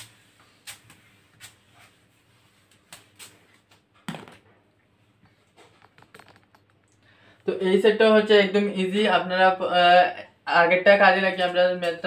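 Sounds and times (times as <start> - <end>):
eraser wiping a whiteboard: 0.0 - 3.6.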